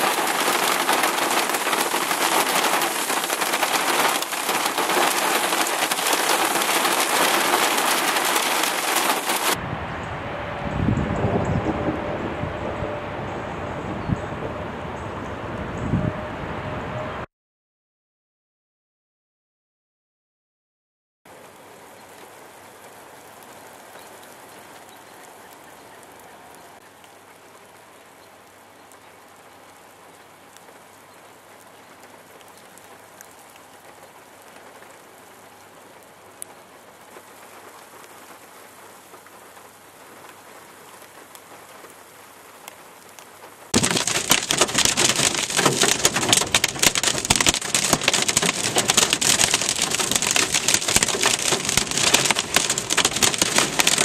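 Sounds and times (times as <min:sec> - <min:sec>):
heavy rain on car roof: 0:00.0 - 0:09.6, 0:28.4 - 0:54.0.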